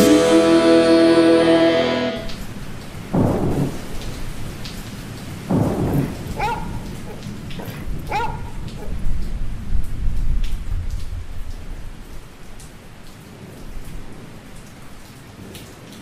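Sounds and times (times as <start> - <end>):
rain falling: 0.0 - 16.0
thunder rumble: 2.2 - 11.4.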